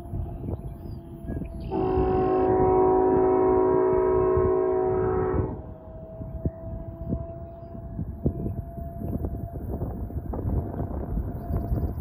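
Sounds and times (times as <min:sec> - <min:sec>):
distant locomotive air horn: 0:01.6 - 0:09.8.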